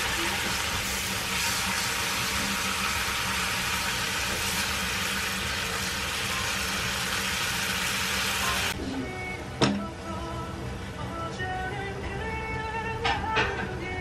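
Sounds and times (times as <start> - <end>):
beef sizzling in frying pan: 0.0 - 8.8.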